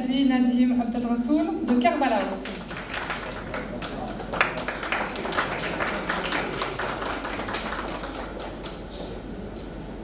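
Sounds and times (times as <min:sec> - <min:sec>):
audience applauding: 0:02.2 - 0:09.0.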